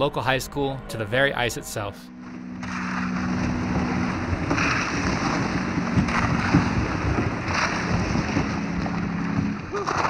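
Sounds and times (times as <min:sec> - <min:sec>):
paddle splashing through water: 0:02.2 - 0:10.0
wind on microphone: 0:02.6 - 0:10.0.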